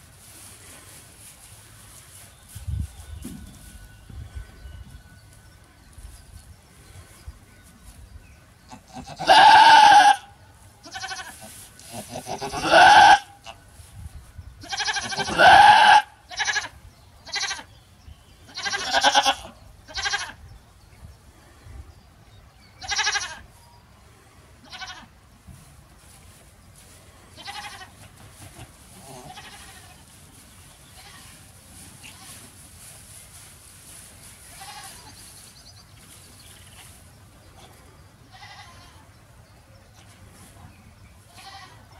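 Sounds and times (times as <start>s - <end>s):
goat bleating: 8.7s - 13.6s, 14.6s - 17.7s, 18.5s - 20.4s, 22.8s - 23.4s, 24.6s - 25.1s, 27.4s - 28.0s, 29.0s - 30.0s, 34.6s - 35.1s, 38.3s - 39.0s, 41.3s - 41.9s.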